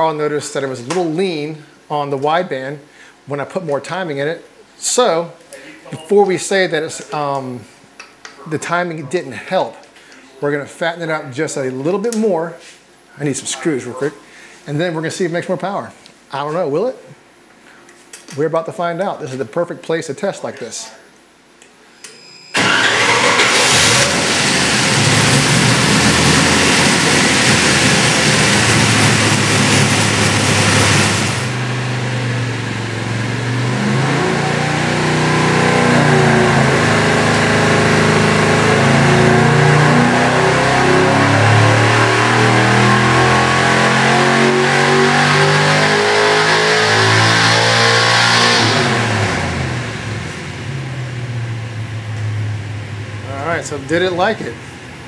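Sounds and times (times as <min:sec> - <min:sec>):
engine revving on a dyno: 0:22.6 - 0:54.8.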